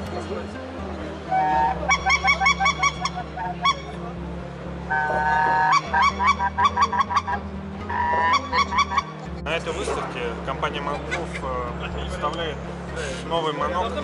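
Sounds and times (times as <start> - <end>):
goose call honking: 1.3 - 4.0, 4.9 - 9.2.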